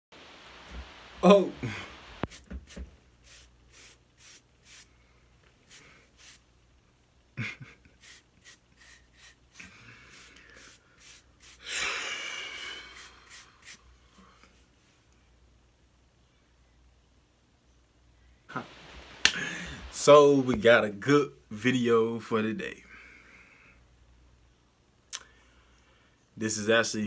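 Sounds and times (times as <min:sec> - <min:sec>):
breathy blow of air: 0:01.6 - 0:02.3, 0:18.5 - 0:20.0.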